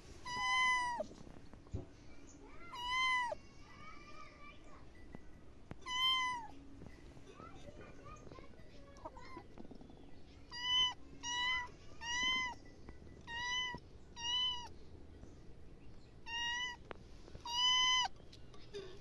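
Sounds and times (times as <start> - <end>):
kitten meowing: 0.2 - 1.1, 2.7 - 3.4, 5.8 - 6.5, 10.5 - 12.6, 13.3 - 14.7, 16.2 - 16.8, 17.4 - 18.2.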